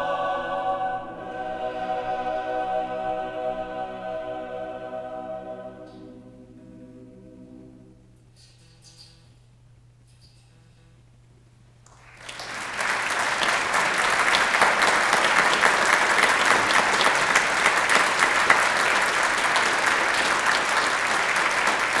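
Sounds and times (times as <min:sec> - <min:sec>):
audience applause: 0:11.9 - 0:22.0.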